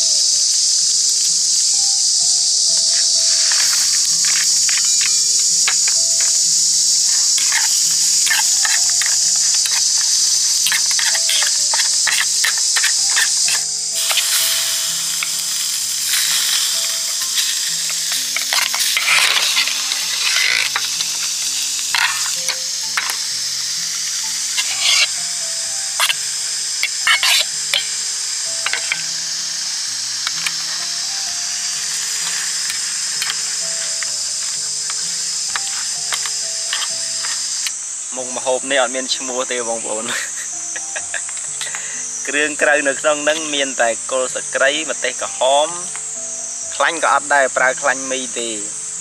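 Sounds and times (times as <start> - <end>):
food sizzling in a pan: 0.0 - 49.0
soft background music: 0.0 - 49.0
utensil scraping a pan: 7.1 - 23.3, 24.0 - 29.1, 30.2 - 37.7.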